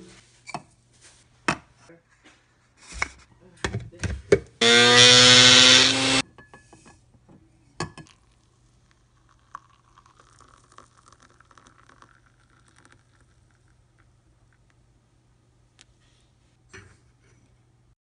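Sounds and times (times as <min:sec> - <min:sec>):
electric coffee grinder whirring: 0:04.6 - 0:06.2
water trickling onto coffee: 0:08.0 - 0:14.8.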